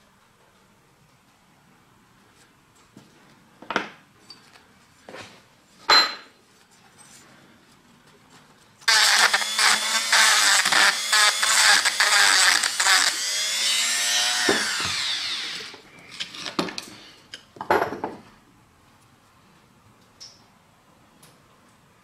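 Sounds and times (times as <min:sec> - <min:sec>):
rotary tool winding down: 0:08.9 - 0:15.8
rotary tool grinding metal: 0:08.9 - 0:16.5.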